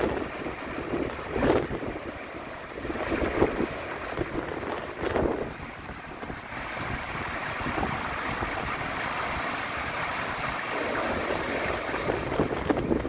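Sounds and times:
stream rushing over rocks: 0.0s - 13.0s
wind buffeting microphone: 0.0s - 13.0s.

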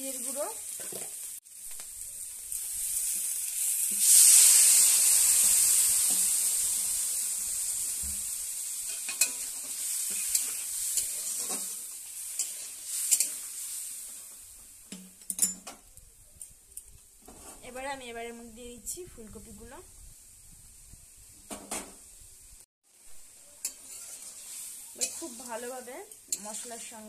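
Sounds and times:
potatoes sizzling in hot oil: 0.0s - 15.0s, 16.7s - 27.0s
spatula scraping pan: 8.9s - 13.6s, 23.6s - 26.8s.

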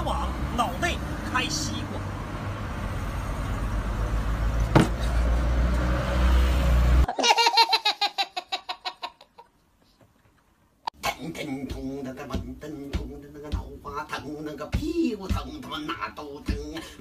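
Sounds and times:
road traffic rumbling: 0.0s - 7.1s
sharp knock: 4.7s - 5.0s
baby laughing: 7.1s - 9.5s.

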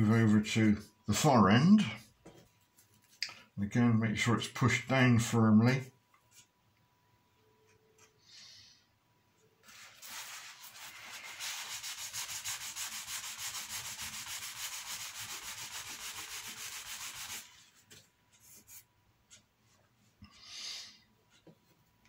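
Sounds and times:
paper towel rubbing on wood: 9.7s - 17.7s.

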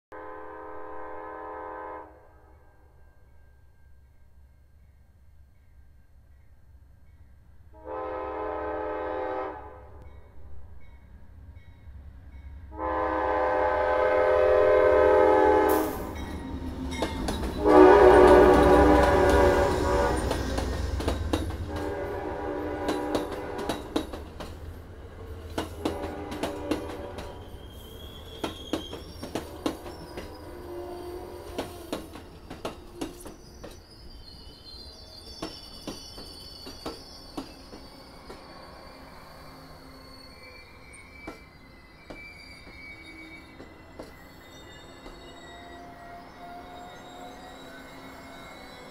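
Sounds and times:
train horn blasts: 0.1s - 3.0s, 7.7s - 10.1s, 12.7s - 16.2s, 17.5s - 20.6s, 21.6s - 24.2s, 25.6s - 27.6s, 29.4s - 32.0s
wheels clicking over rail joints: 16.2s - 19.4s, 20.2s - 21.9s, 22.8s - 27.5s, 31.4s - 33.9s.

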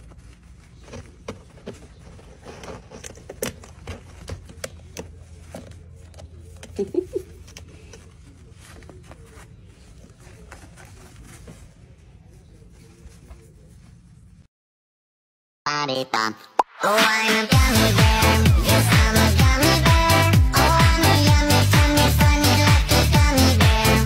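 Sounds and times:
rustling in bedding: 0.0s - 3.1s, 7.2s - 14.5s.

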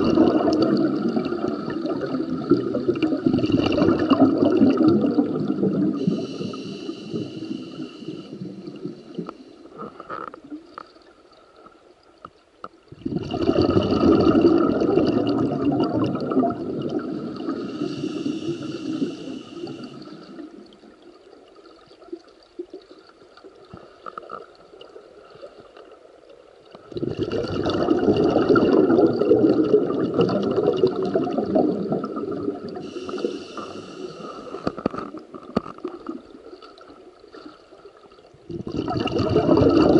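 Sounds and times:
exhaled bubbles rushing underwater: 0.0s - 9.5s, 12.9s - 24.0s, 26.7s - 39.9s
regulator inhalation hisses: 6.0s - 9.7s, 17.3s - 20.4s, 32.8s - 34.8s.

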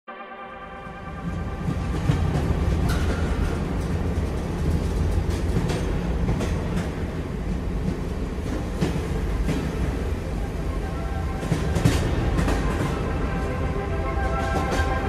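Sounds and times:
train rumbling on rails: 0.5s - 15.0s
wheels clacking over rail joints: 1.6s - 13.4s.

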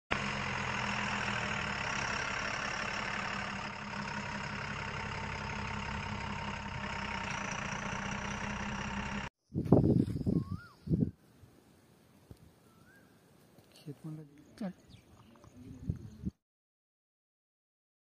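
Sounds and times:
heavy engine idling: 0.1s - 9.3s.

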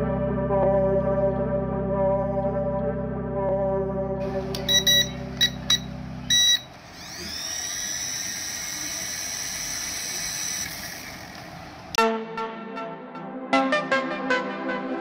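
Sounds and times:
background music: 0.0s - 6.3s, 12.0s - 15.0s
toy helicopter rotor motors whining: 4.5s - 12.0s
short electronic beeps: 4.6s - 6.7s.

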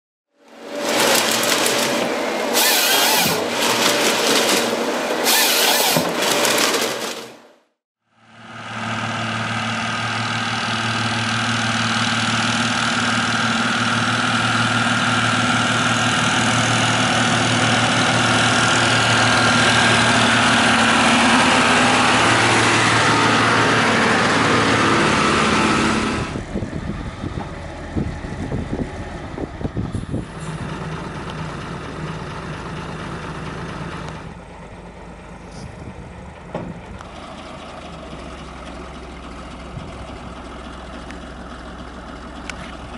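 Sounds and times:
tractor diesel engine running: 0.4s - 42.9s.

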